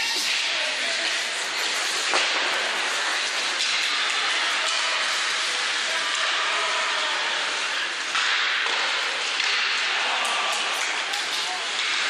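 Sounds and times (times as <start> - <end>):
skate blades hissing on ice: 0.0 - 8.1
hockey sticks and puck clicking: 0.0 - 12.0.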